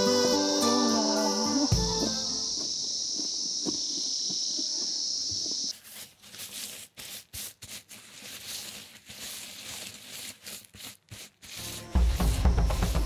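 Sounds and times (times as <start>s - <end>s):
high-pitched hiss: 0.0s - 5.8s, 11.6s - 13.0s
dry crop stalks rustling: 2.4s - 13.0s.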